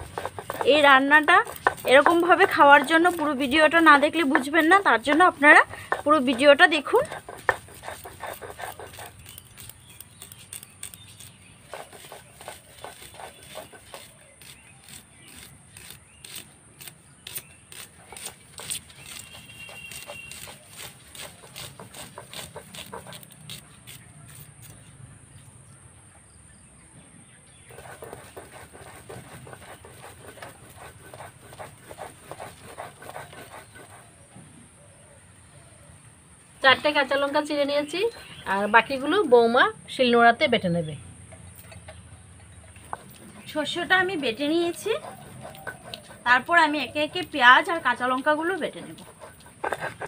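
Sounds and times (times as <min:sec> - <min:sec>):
onions sliced against a blade: 0:00.0 - 0:24.8.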